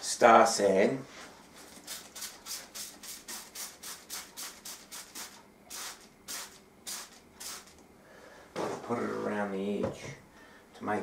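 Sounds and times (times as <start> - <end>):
spray bottle hissing sprays: 1.7 - 7.8.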